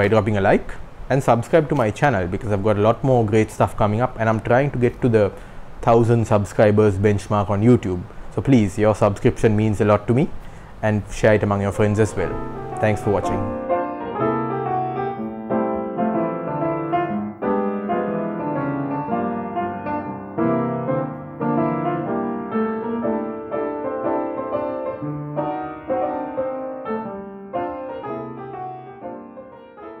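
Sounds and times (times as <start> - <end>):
piano music: 11.3 - 30.0.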